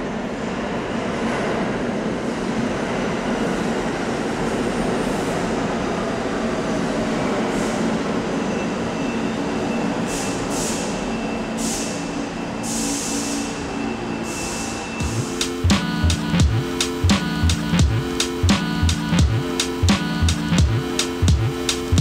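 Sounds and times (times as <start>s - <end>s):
high brake squeal: 8.4s - 15.0s.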